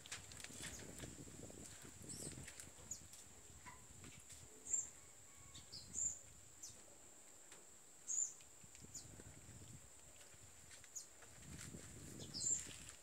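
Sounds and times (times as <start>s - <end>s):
small birds chirping: 1.9s - 6.9s, 8.0s - 9.8s, 10.8s - 11.2s, 12.0s - 13.0s.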